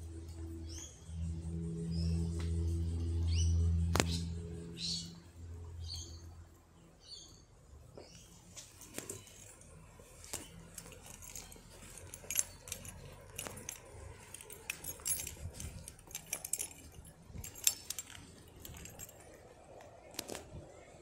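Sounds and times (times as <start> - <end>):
small clicks and clinks: 8.6 - 20.4.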